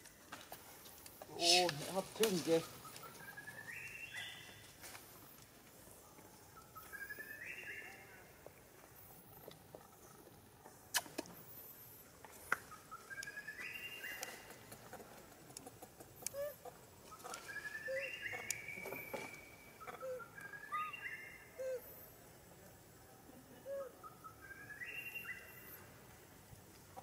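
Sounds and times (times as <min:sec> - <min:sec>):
bird song whistled notes: 0:02.7 - 0:04.6, 0:06.8 - 0:08.2, 0:12.7 - 0:14.4, 0:17.5 - 0:21.8, 0:23.8 - 0:26.0.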